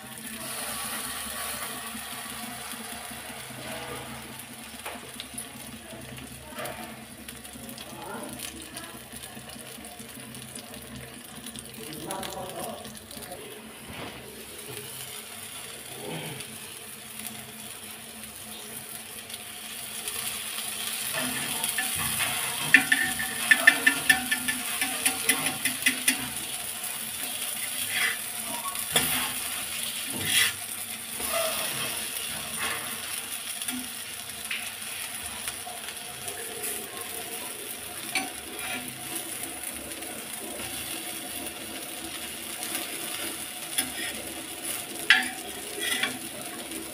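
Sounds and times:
food sizzling in oil: 0.0 - 46.9
metal spatula scraping pan: 3.6 - 4.3, 21.1 - 26.5, 27.7 - 32.8, 38.1 - 39.0, 43.7 - 46.6.

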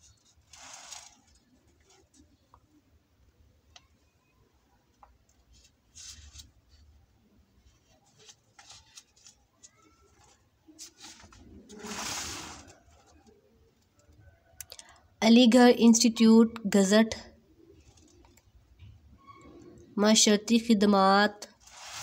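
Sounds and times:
book page turning: 0.2 - 2.3, 5.5 - 6.9, 7.8 - 13.4, 21.6 - 22.0.

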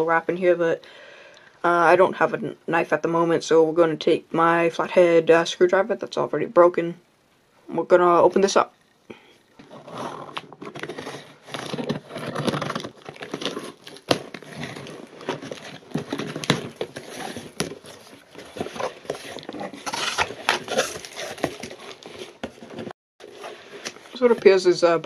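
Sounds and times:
tape and cardboard scraping: 9.5 - 24.4.

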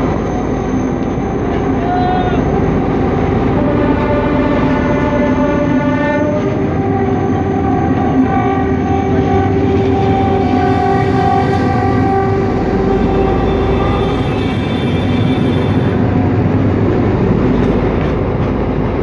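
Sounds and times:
moving train rumble: 0.0 - 19.0
locomotive horn blast: 1.5 - 16.5.

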